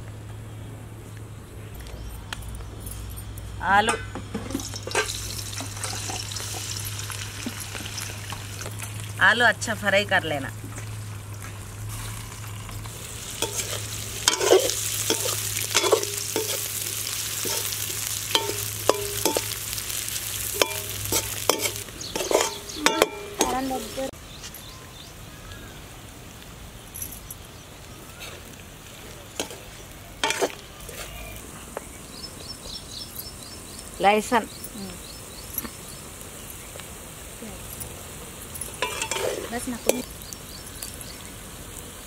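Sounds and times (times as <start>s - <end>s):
potatoes sizzling in oil: 4.4s - 25.3s, 25.9s - 42.0s
metal spoon scraping a pan: 13.4s - 19.6s, 20.4s - 24.0s, 30.2s - 30.7s, 38.6s - 40.1s.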